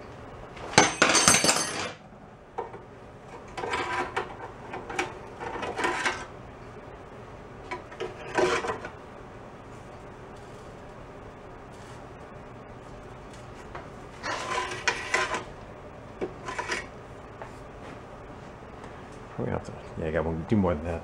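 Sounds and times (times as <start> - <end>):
pry bar scraping metal frame: 3.4 - 6.3, 14.2 - 15.5, 16.4 - 16.9.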